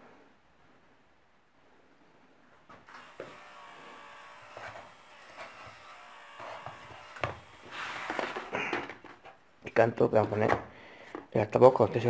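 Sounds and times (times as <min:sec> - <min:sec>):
small gear motors whirring: 0:02.9 - 0:08.5.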